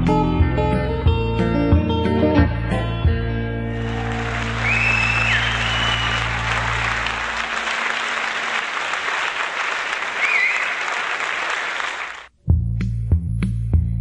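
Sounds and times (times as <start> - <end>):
whistle from audience: 3.8 - 7.8, 10.1 - 11.0
audience applauding: 3.8 - 12.3.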